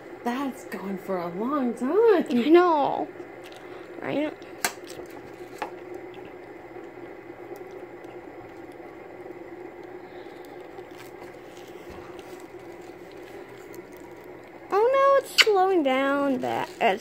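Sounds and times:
fidget spinner whirring: 0:05.2 - 0:17.0.

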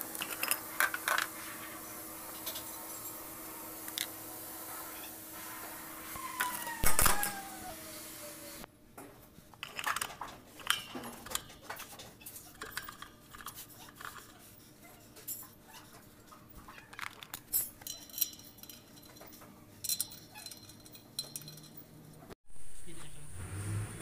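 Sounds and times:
metal tools clinking: 0:00.1 - 0:01.4, 0:09.6 - 0:22.2.

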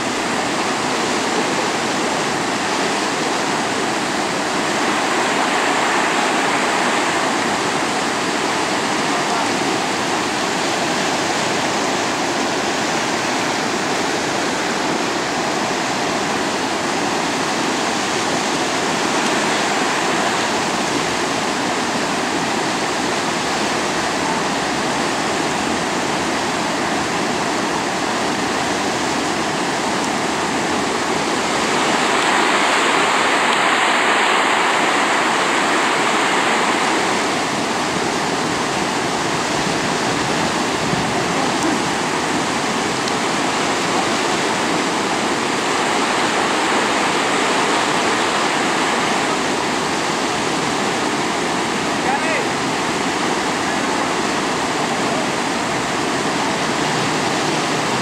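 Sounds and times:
river rapids rushing: 0:00.0 - 0:58.0.

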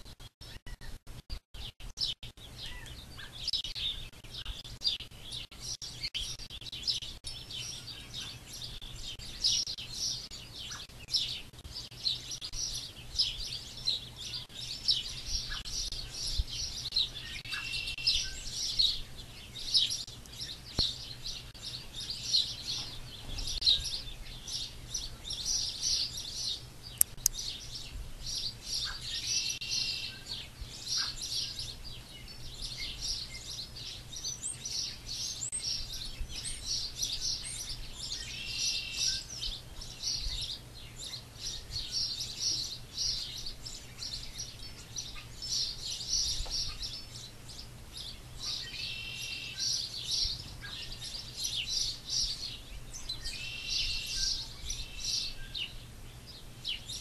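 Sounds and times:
small birds chirping: 0:00.0 - 0:57.0
longer bird call: 0:17.2 - 0:18.8.

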